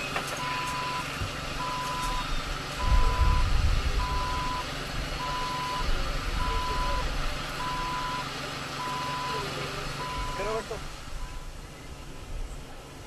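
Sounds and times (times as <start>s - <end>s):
vehicle warning beeper: 0.0s - 11.6s
low rumble: 1.2s - 7.8s.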